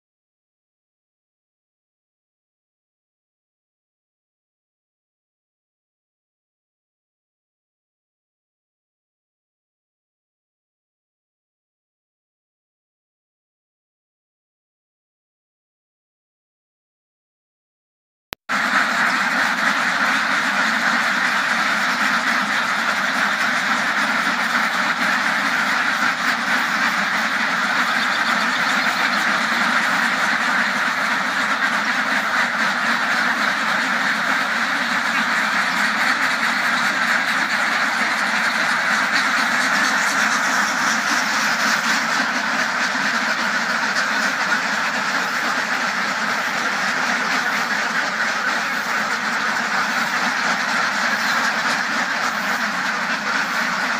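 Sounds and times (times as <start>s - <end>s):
flock of ducks quacking: 18.5s - 53.9s.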